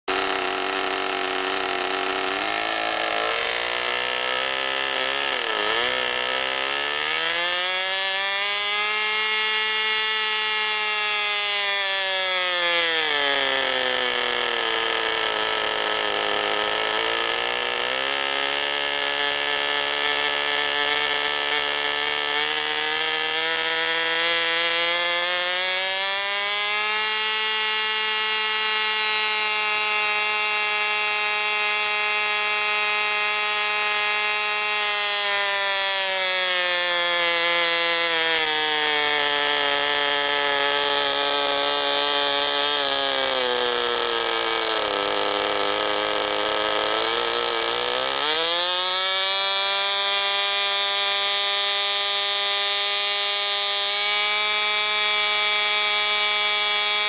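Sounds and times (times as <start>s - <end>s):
model airplane engine revving: 0.1s - 57.0s.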